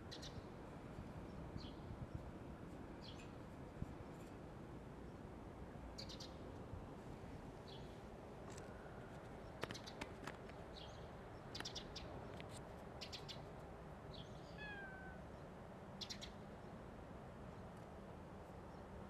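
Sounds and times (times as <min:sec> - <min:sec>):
cat meowing: 0:14.5 - 0:15.2.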